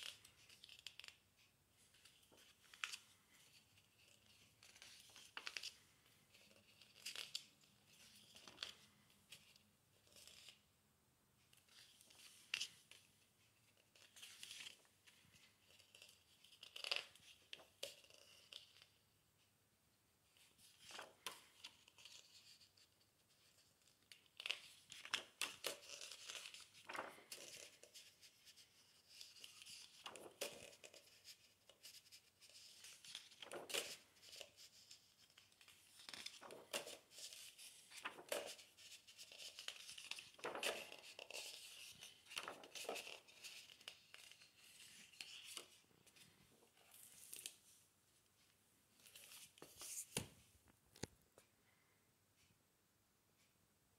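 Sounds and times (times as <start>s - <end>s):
book pages turning: 1.9s - 10.6s, 20.6s - 47.7s, 49.0s - 50.4s.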